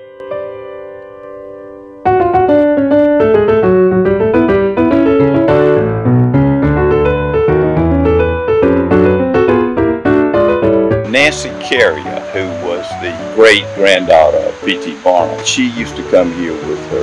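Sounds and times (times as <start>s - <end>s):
piano music: 0.0s - 17.0s.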